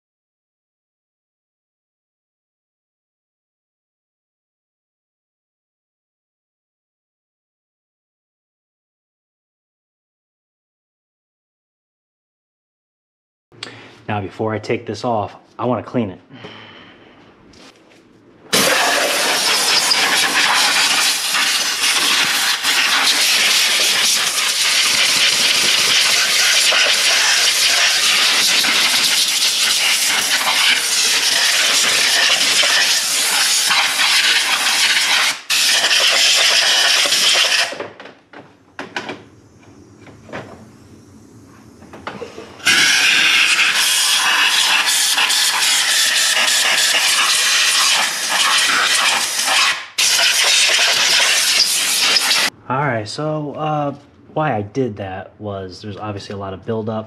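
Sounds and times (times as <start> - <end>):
compressed air blow gun hissing: 18.5 - 37.8, 42.2 - 52.5.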